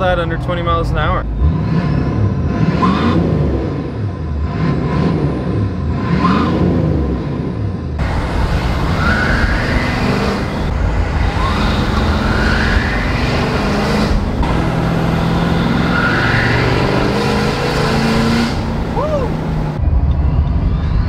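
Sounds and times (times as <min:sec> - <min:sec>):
diesel truck engine accelerating: 0:00.0 - 0:21.0
turbo whistle rising in pitch: 0:09.0 - 0:10.4.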